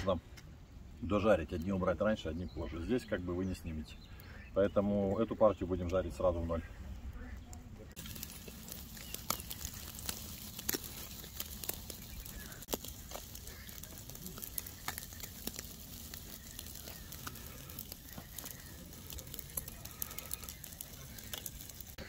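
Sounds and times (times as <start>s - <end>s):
sharp pops and crackles: 7.2s - 22.0s
fish sizzling over charcoal: 7.9s - 22.0s.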